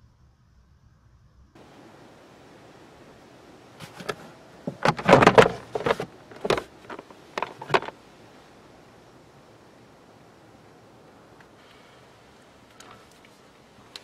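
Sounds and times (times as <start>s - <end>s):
plastic glove compartment clicks: 3.8s - 7.9s.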